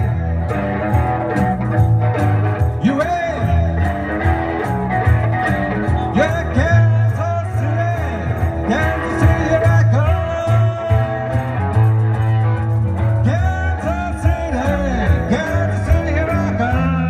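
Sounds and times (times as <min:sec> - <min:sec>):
bass guitar: 0:00.0 - 0:17.0
electric guitar: 0:00.0 - 0:17.0.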